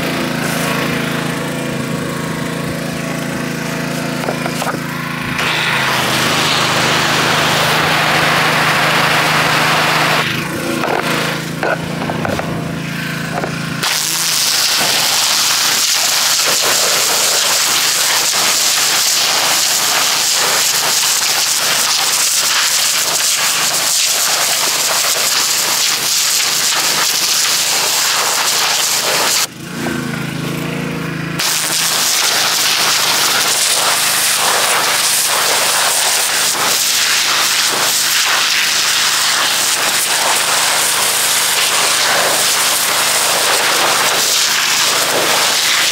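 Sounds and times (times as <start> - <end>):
engine humming: 0.0 - 17.9
pressure washer jet hissing: 0.0 - 29.5, 31.4 - 45.9.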